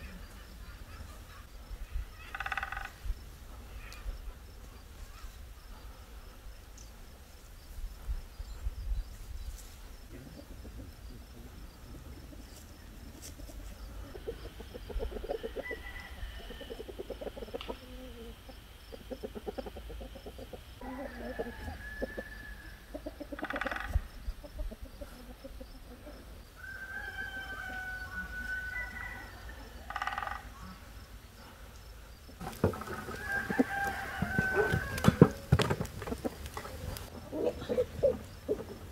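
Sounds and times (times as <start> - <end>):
chickens clucking: 10.0 - 38.9.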